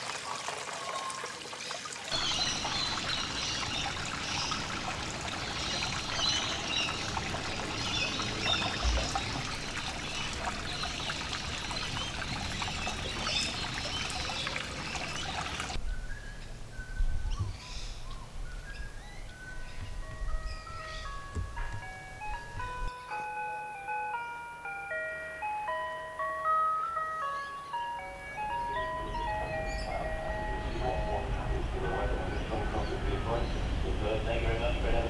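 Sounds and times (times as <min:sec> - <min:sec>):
creek water trickling over rocks: 0:00.0 - 0:15.8
slow tune of high notes: 0:19.3 - 0:33.0.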